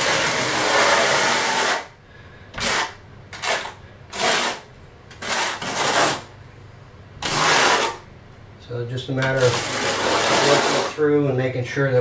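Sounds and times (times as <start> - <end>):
trowel scraping wet mortar: 2.6 - 6.3, 7.2 - 8.0, 9.3 - 11.0.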